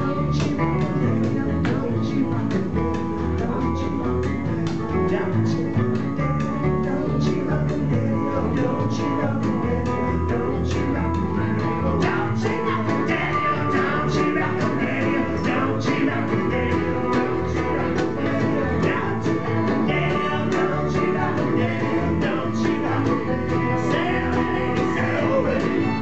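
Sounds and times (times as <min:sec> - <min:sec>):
person singing: 0:00.0 - 0:26.0
strummed acoustic guitar: 0:00.0 - 0:26.0
upright bass: 0:00.0 - 0:26.0.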